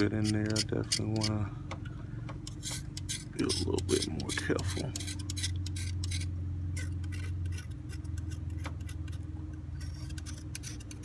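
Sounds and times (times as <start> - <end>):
hand tool scraping metal: 0.0 - 1.5, 2.5 - 11.0
steady low hum: 0.0 - 11.0.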